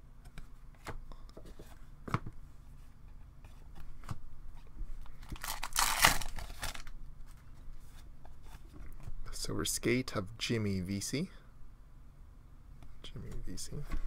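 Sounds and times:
card pack wrapper tearing: 5.2 - 6.9.

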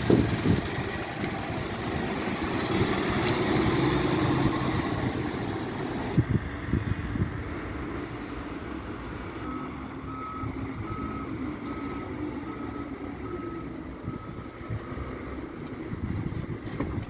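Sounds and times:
bus diesel engine droning: 0.0 - 17.0.

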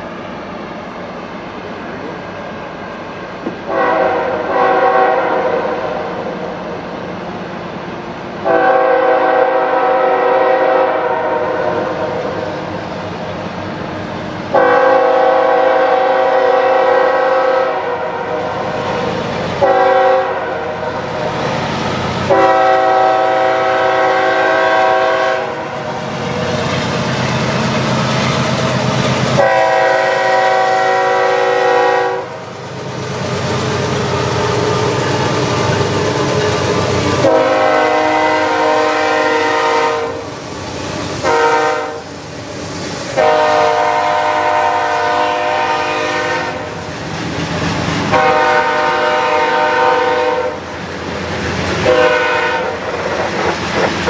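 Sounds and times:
train cars clattering past: 0.0 - 54.0
locomotive air horn blasts: 3.7 - 5.9, 8.4 - 12.2, 14.5 - 18.5, 19.6 - 21.1, 22.3 - 25.8, 29.4 - 32.4, 37.2 - 40.3, 41.2 - 42.1, 43.2 - 46.7, 48.1 - 50.6, 51.8 - 52.9.

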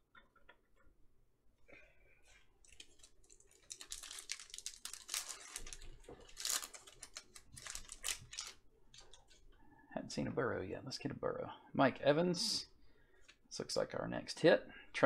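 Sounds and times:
plastic wrapper crinkling and tearing: 2.6 - 9.4.

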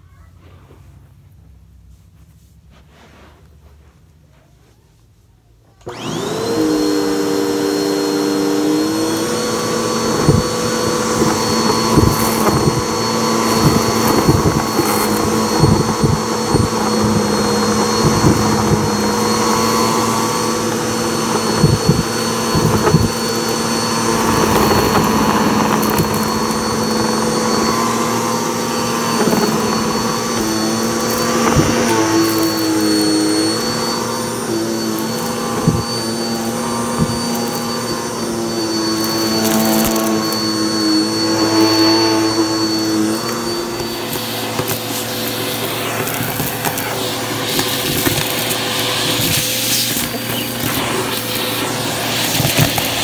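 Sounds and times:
vacuum cleaner motor whine: 5.8 - 53.0
debris crackling in vacuum: 10.0 - 37.8.

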